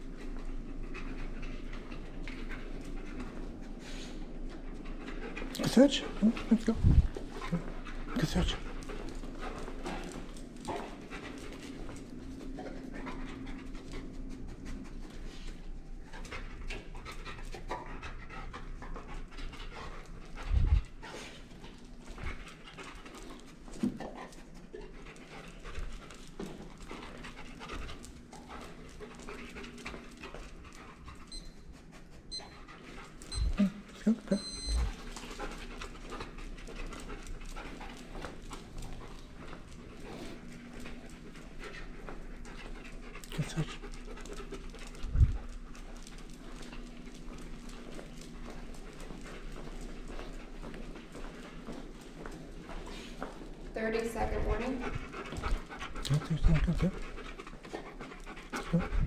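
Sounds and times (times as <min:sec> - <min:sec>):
dog panting: 0:00.0 - 0:59.0.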